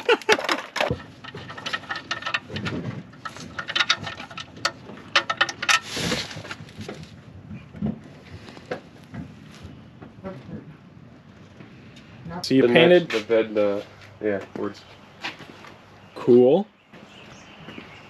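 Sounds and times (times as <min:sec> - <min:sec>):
hand tools clinking and clattering: 0:00.0 - 0:07.2.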